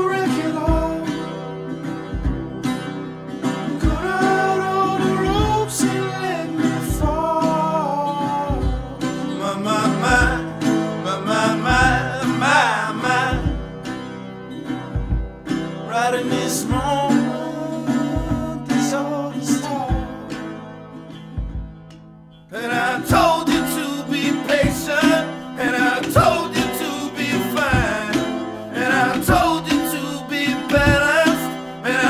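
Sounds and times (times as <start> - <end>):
person singing: 0.0 - 1.3, 3.8 - 13.6, 15.9 - 20.5, 22.5 - 32.0
acoustic guitar: 0.0 - 32.0.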